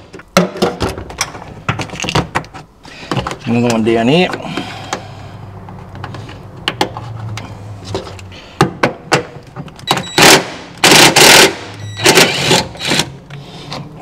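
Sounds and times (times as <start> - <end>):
impact driver hammering: 9.9 - 13.1.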